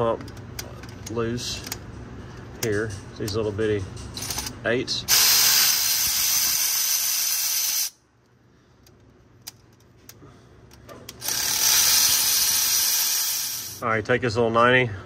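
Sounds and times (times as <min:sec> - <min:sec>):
electric ratchet running: 0:05.1 - 0:08.0, 0:11.2 - 0:13.8.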